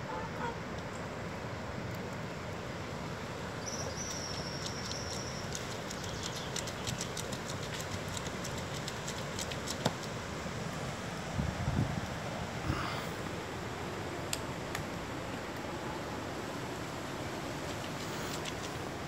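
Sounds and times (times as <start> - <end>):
wind on microphone: 11.3 - 13.0.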